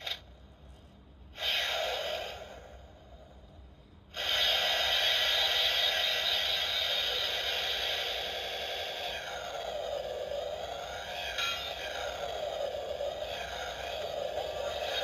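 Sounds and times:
electronic toy sound effect: 4.2s - 15.0s
toy electronic blip: 4.2s - 15.0s.

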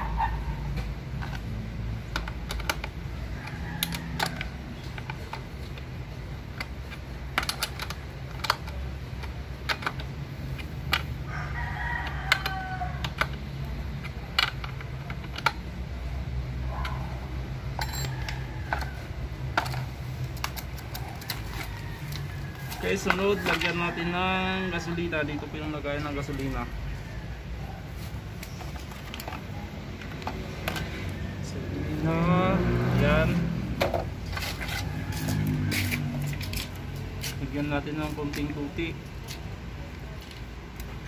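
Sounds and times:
rooster crowing: 3.3s - 4.7s, 11.2s - 13.5s, 17.8s - 19.3s, 21.2s - 25.1s, 26.6s - 28.0s, 34.5s - 36.6s.

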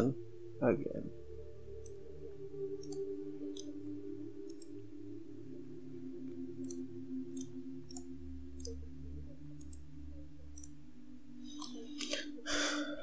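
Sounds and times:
computer mouse clicking: 2.8s - 3.7s, 4.5s - 4.7s, 6.6s - 8.8s, 11.5s - 12.2s.

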